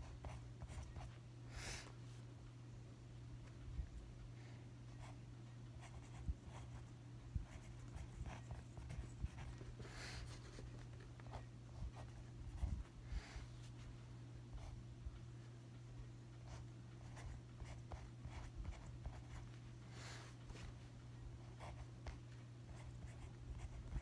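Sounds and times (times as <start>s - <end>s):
low steady hum: 0.0s - 24.0s
pen scratching on paper: 7.4s - 9.6s.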